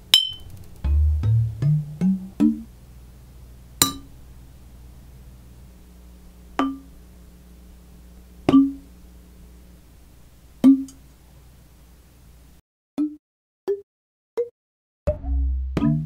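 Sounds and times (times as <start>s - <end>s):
bottles struck ringing: 0.0s - 0.5s, 3.8s - 4.2s, 6.6s - 6.9s.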